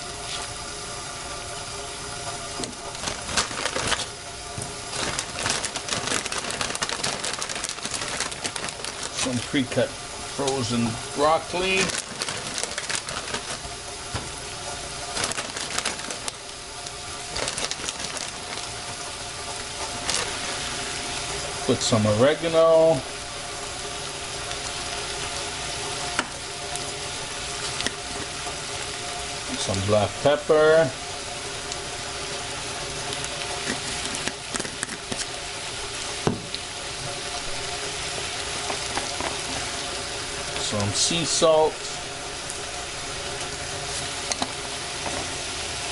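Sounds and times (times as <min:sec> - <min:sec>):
food sizzling in frying pan: 0:00.0 - 0:45.9
plastic bag crinkling: 0:02.6 - 0:20.8, 0:33.1 - 0:35.4.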